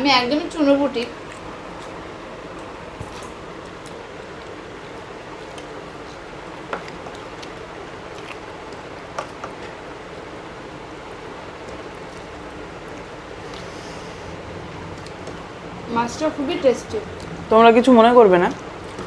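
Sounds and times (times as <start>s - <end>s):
chewing and mouth sounds: 1.2s - 4.6s, 5.3s - 9.7s, 14.7s - 15.5s
steady hiss: 12.6s - 14.7s.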